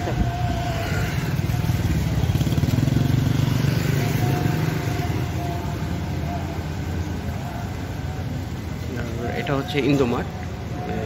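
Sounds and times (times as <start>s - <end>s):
motorcycle passing by: 0.1s - 7.6s.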